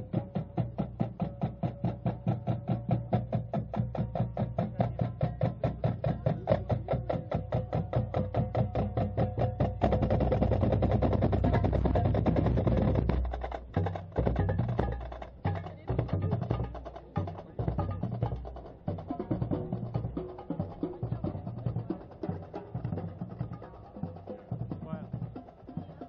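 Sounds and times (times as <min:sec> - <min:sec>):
snare and bass drums cadence: 0:00.0 - 0:26.0.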